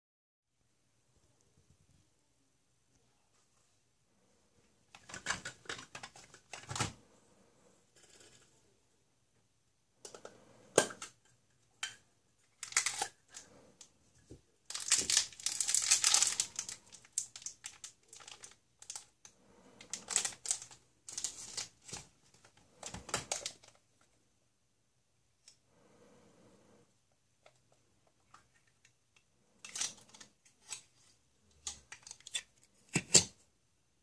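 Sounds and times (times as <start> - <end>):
plastic toys clicking and knocking: 4.9 - 7.0, 10.0 - 13.4, 14.6 - 23.8, 31.5 - 33.4
plastic packet crinkling: 12.6 - 13.4, 14.7 - 19.1, 19.8 - 23.8.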